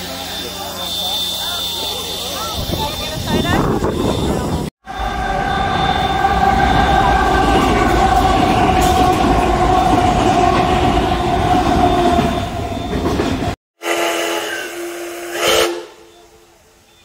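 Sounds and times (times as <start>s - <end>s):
train wheels rumbling on rails: 0.0s - 13.6s
diesel locomotive engine whine: 0.0s - 17.0s.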